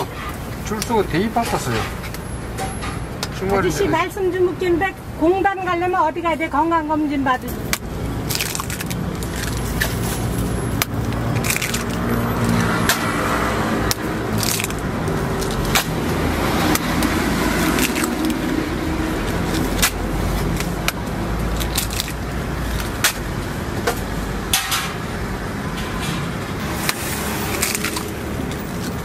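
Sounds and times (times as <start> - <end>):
street traffic hum: 0.0 - 29.0.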